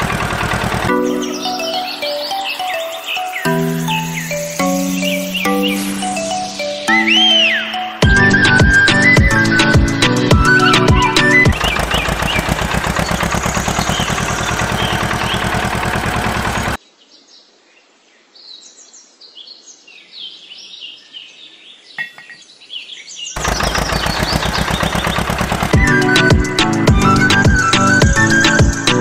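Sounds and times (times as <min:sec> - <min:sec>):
small diesel engine puttering: 0:00.0 - 0:02.2, 0:08.0 - 0:16.8, 0:23.4 - 0:29.0
birds chirping: 0:00.0 - 0:17.2, 0:18.5 - 0:29.0.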